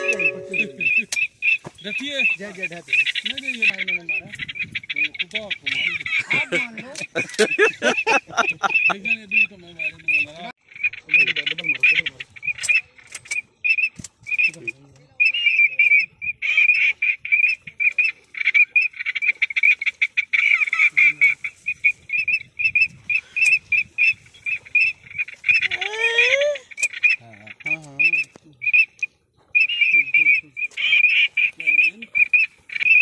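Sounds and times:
duck calling rapidly: 0.0 - 12.9, 29.6 - 33.0.

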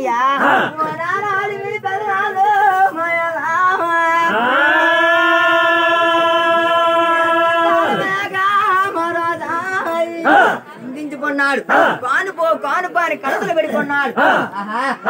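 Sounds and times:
man singing folk chant: 0.4 - 10.8.

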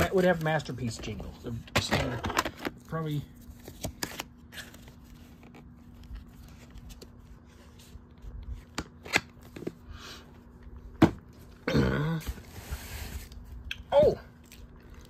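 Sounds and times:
soft packaging rustle: 0.0 - 11.5.

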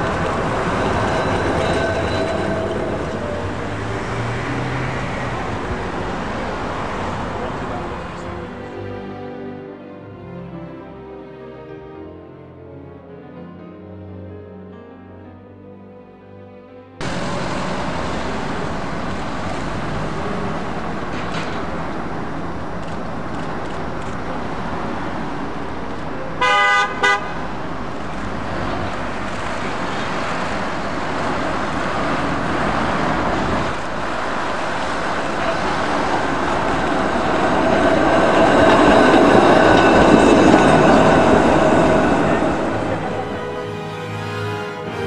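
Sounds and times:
electric tram running with whine: 0.0 - 9.3, 17.0 - 45.0
tram horn toots: 0.0 - 9.4, 26.4 - 27.5, 35.4 - 45.0
traffic noise: 0.0 - 10.7, 17.0 - 45.0.

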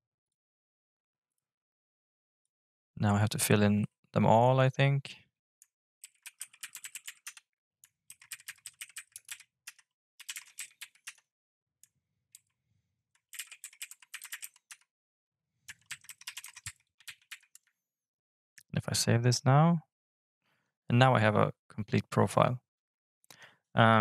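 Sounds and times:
typing on computer keyboard: 6.0 - 11.2, 13.2 - 14.9, 15.7 - 17.7.

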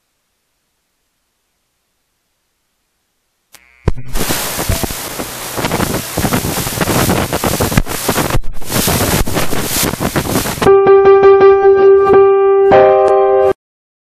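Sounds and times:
loud rushing noise: 3.9 - 10.7.

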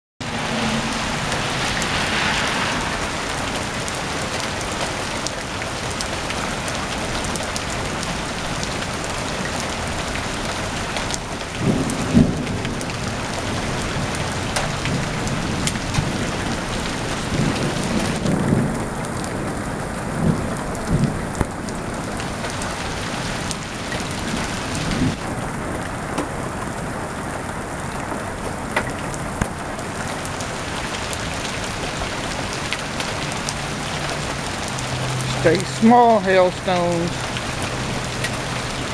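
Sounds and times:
low rumbles: 0.2 - 5.3
rain and hail pelting ground: 0.2 - 38.9.

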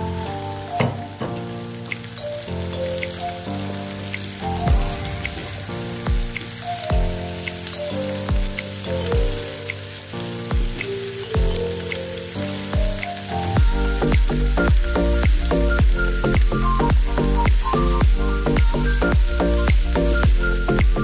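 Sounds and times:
music with drum beat: 4.7 - 9.5, 10.5 - 11.7, 12.8 - 21.0.

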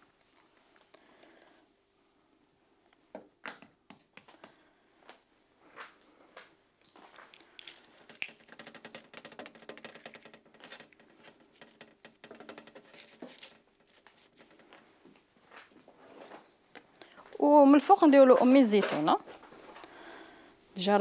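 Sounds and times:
hands patting dough on tray: 3.3 - 4.7.

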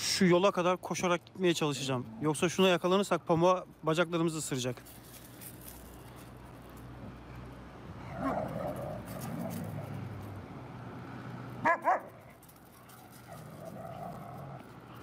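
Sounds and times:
dog barks: 11.6 - 13.4
dogs growling: 13.2 - 15.0.

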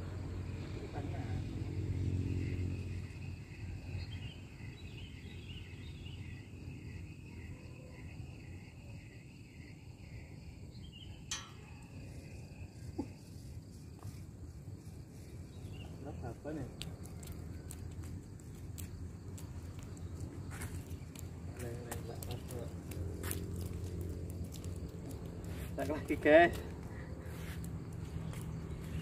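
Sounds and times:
faint steady high trill: 11.1 - 12.8.

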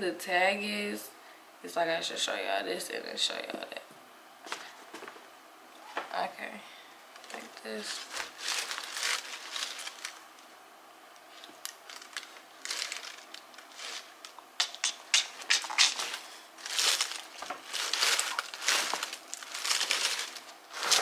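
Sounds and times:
rustling and crinkling wrapping: 7.1 - 10.5, 11.2 - 14.4, 15.5 - 21.0.

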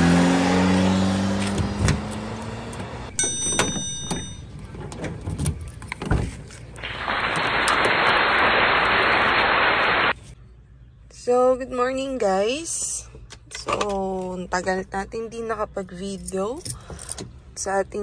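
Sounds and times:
high ringing tones: 3.1 - 4.6
loud steady hiss: 6.8 - 10.1.

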